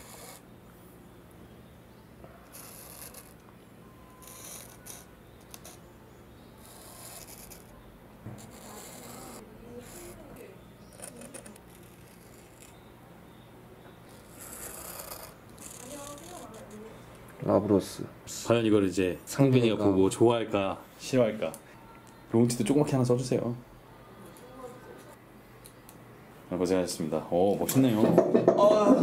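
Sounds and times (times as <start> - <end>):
marker scraping grip tape: 0.0 - 0.4, 2.5 - 3.4, 4.2 - 5.8, 6.6 - 7.7, 8.4 - 10.2, 10.9 - 12.8, 14.1 - 16.9.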